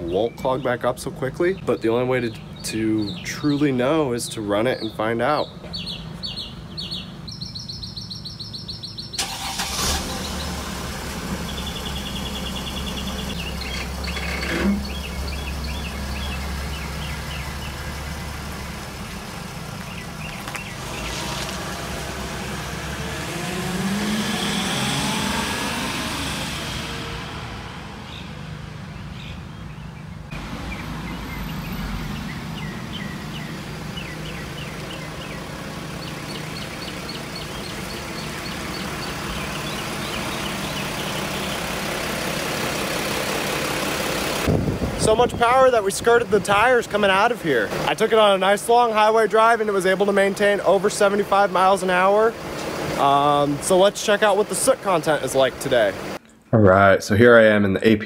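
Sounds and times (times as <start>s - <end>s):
birds chirping: 0.0s - 57.2s
diesel van engine running: 5.5s - 56.2s
engine revving: 9.2s - 29.7s, 30.3s - 45.2s.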